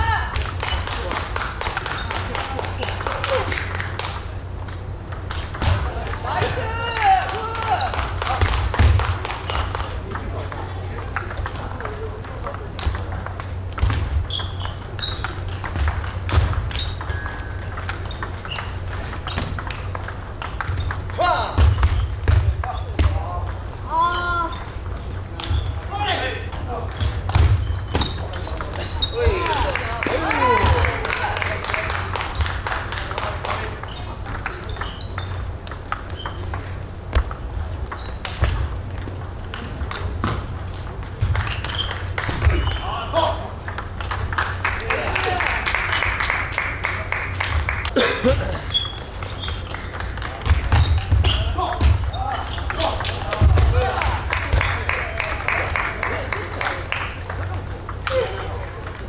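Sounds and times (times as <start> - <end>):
steady low hum: 0.0 - 59.0
table tennis balls clicking: 0.2 - 59.0
short high squeaks: 14.2 - 15.4, 27.6 - 29.2, 33.8 - 35.4, 36.0 - 36.6, 48.7 - 49.7.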